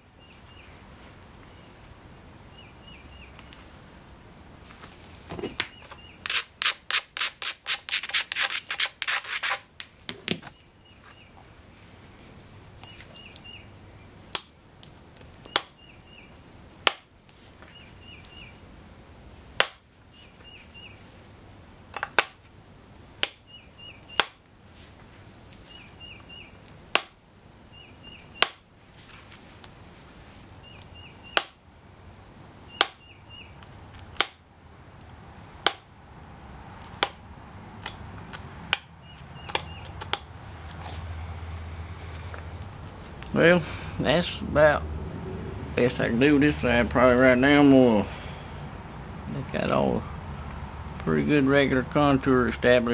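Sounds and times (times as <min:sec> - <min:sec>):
bird chirping: 0:00.0 - 0:00.8, 0:02.5 - 0:03.6, 0:05.5 - 0:06.4, 0:10.4 - 0:11.4, 0:12.8 - 0:14.2, 0:15.4 - 0:16.4, 0:17.7 - 0:18.6, 0:20.1 - 0:21.0, 0:23.4 - 0:24.2, 0:25.6 - 0:26.6, 0:27.7 - 0:28.5, 0:30.6 - 0:31.6, 0:32.6 - 0:33.6, 0:38.8 - 0:40.1
flaker scraping stone: 0:05.3 - 0:09.7.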